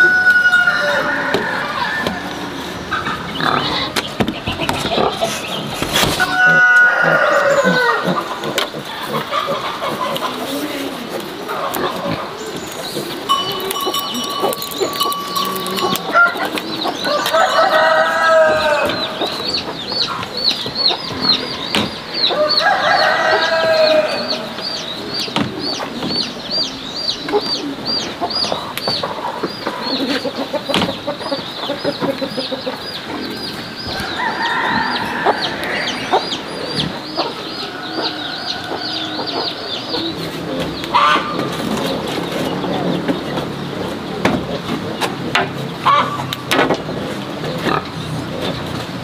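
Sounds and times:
rooster crowing: 0.0s - 2.3s, 6.2s - 8.2s, 13.3s - 19.2s, 22.3s - 24.5s, 33.9s - 36.3s
high chirping: 12.4s - 18.0s.

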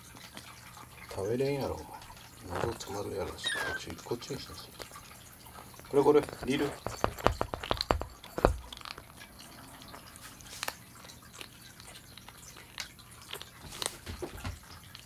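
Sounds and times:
kittens crunching kibble: 1.8s - 15.0s
food bowl knocking on floor: 6.4s - 8.7s.

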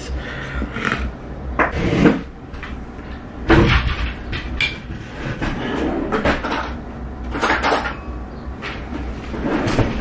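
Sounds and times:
drawer pulled open: 9.3s - 10.0s.

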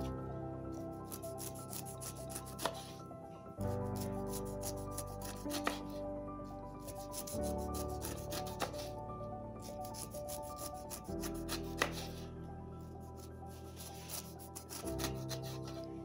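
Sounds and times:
background music chords: 0.0s - 16.0s
knife cutting pineapple skin: 1.1s - 3.0s, 3.9s - 5.8s, 6.8s - 8.9s, 9.8s - 12.3s, 13.1s - 15.8s.

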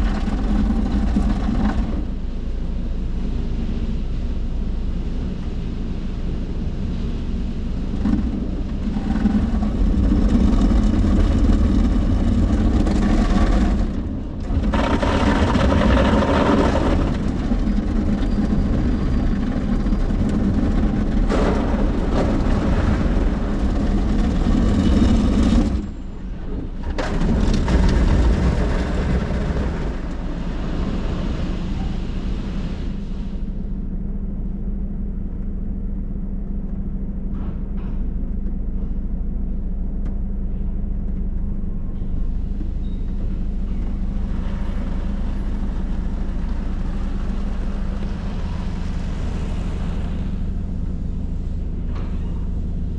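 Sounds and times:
low rumble of wash machinery: 0.0s - 52.9s.

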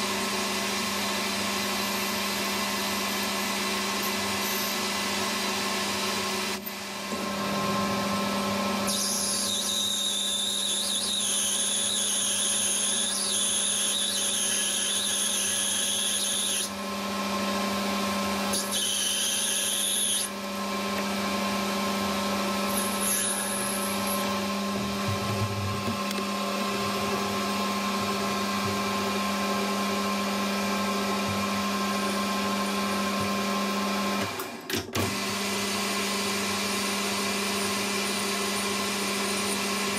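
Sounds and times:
high-pitched drilling whine: 0.8s - 5.2s, 5.8s - 16.8s, 18.2s - 20.8s, 21.9s - 25.5s, 27.5s - 34.0s, 36.7s - 39.9s.

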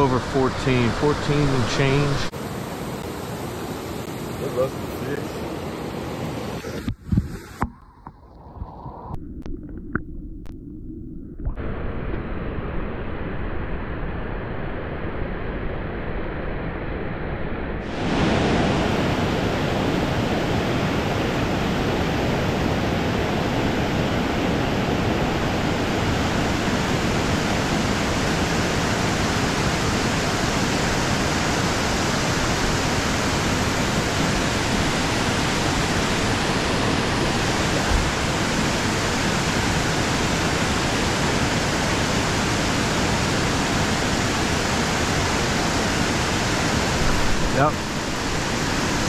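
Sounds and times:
creek water rushing: 0.0s - 6.8s, 17.9s - 49.0s.

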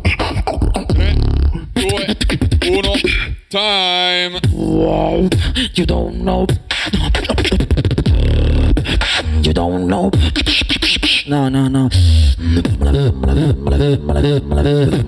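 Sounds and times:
hummed bass notes: 0.0s - 2.1s, 4.4s - 10.4s, 12.0s - 15.0s
beatboxing into a microphone: 0.0s - 3.5s, 4.3s - 15.0s.

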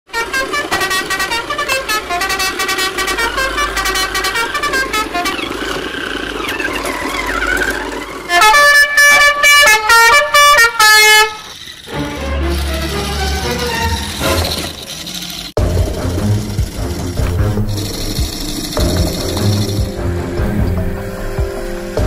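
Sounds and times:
loud horn honks: 0.1s - 14.7s, 15.6s - 22.0s
wavering sliding tone: 1.9s - 9.3s.

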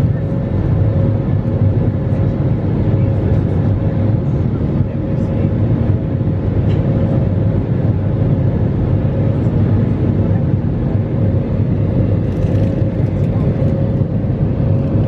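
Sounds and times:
jet engine cabin rumble: 0.0s - 15.0s.

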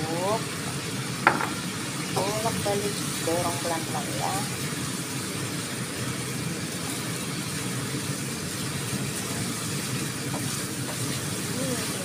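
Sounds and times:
food sizzling in hot oil: 0.0s - 12.0s
spatula turning food in wok: 4.7s - 12.0s.

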